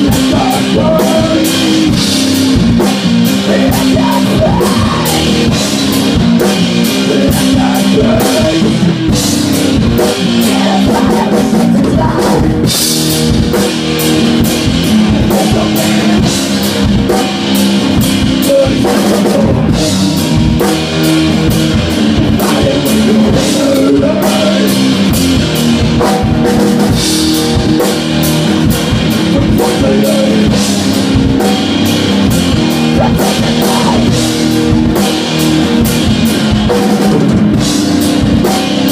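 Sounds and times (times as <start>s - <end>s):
live rock band playing: 0.0s - 38.9s.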